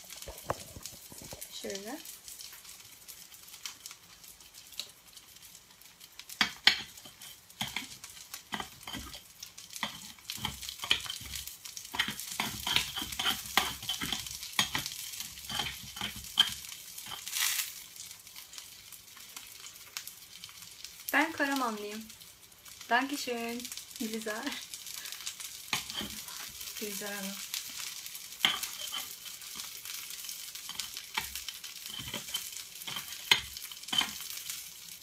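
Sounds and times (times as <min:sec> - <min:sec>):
food frying and sizzling: 0:00.0 - 0:35.0
metal spatula scraping a plate: 0:12.0 - 0:17.4, 0:28.4 - 0:29.7, 0:30.7 - 0:34.2.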